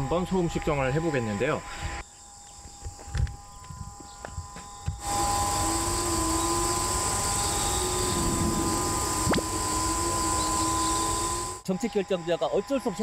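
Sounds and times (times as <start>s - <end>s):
loudspeaker drone of held tones: 0.0s - 1.8s.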